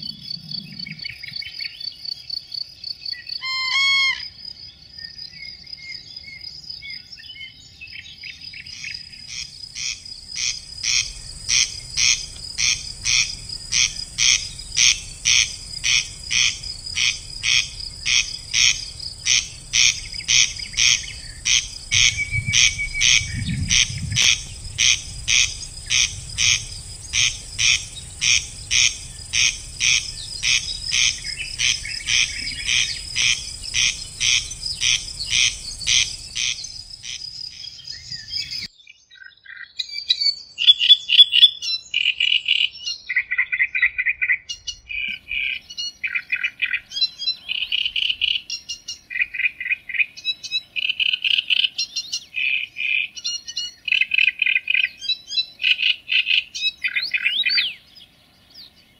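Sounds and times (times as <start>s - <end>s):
high buzz of insects: 0.0s - 38.7s
animal rasping call: 3.4s - 4.3s.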